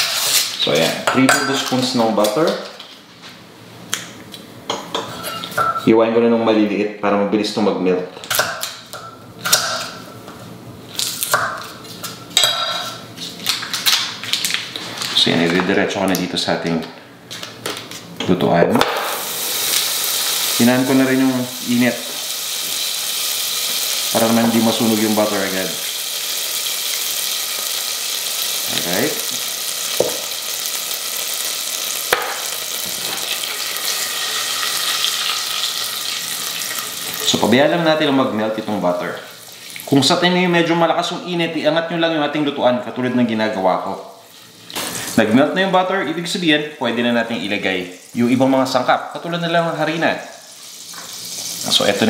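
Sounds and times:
butter sizzling in a saucepan: 18.9 - 37.6, 39.2 - 40.0, 49.8 - 52.0.

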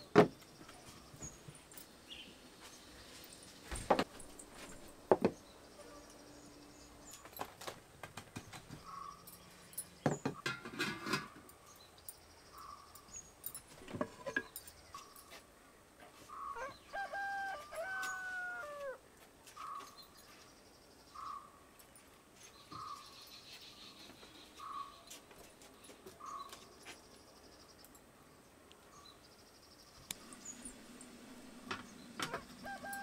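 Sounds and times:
cooking vessels knocking and clinking: 10.0 - 11.6, 13.8 - 14.7
rooster crowing: 16.6 - 19.0, 32.2 - 33.0.

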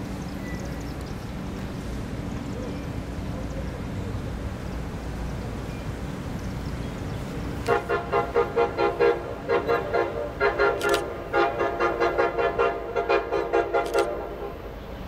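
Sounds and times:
train rumbling: 0.0 - 15.0
locomotive air horn blasts: 7.6 - 14.9.

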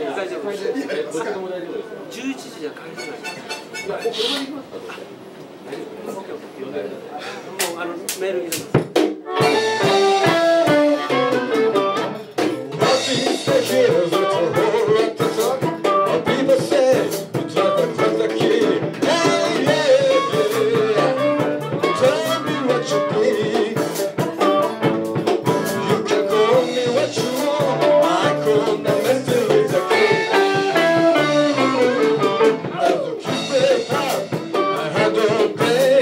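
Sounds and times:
drum kit: 7.6 - 36.0
electric guitars: 9.2 - 36.0.

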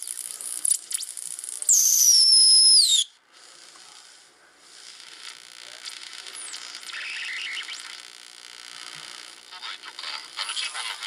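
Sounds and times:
high heterodyne whistle: 1.7 - 3.1
radio band noise hiss: 3.2 - 11.0.

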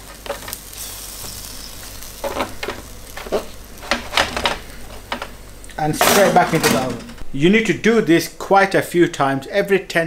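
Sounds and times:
chicken wings sizzling: 0.0 - 10.0.

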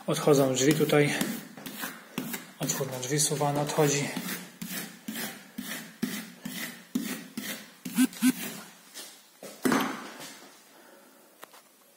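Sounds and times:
trowel scraping plaster on wall: 0.6 - 3.0, 3.8 - 8.6.

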